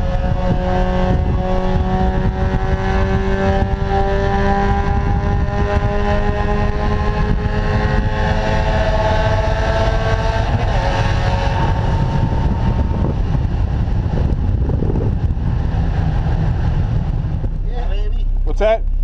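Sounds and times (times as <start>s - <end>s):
heavy wind: 0.0s - 19.0s
road rumble: 0.0s - 19.0s.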